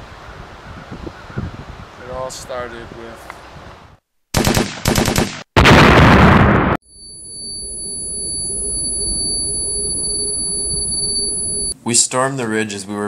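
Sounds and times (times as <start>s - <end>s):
loud explosion: 5.6s - 6.8s
high-pitched ringing tone: 6.8s - 11.8s.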